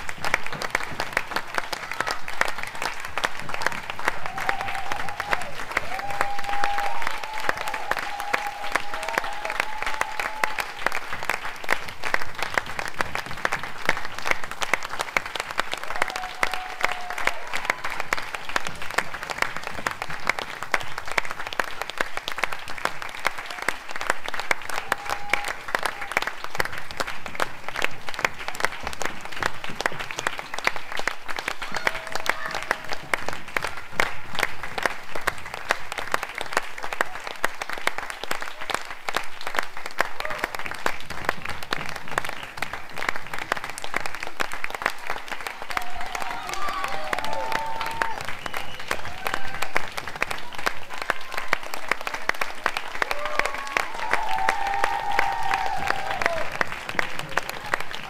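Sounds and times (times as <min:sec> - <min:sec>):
audience applauding: 0:00.0 - 0:58.0.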